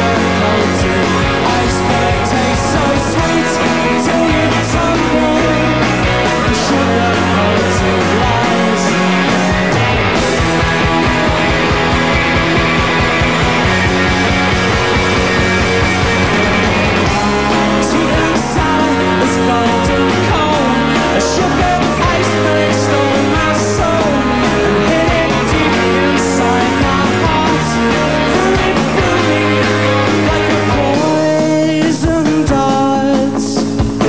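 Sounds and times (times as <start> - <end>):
live rock band music: 0.0 - 34.0.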